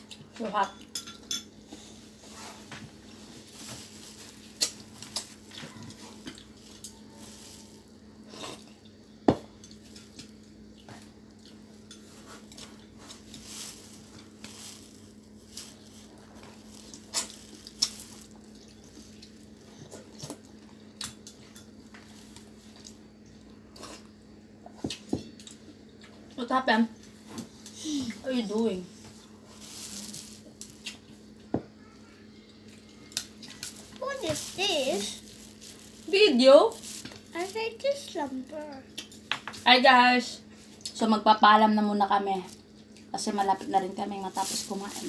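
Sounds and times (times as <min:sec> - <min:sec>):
steady low hum: 0:00.0 - 0:45.0
chopsticks clinking against bowls: 0:00.6 - 0:01.6.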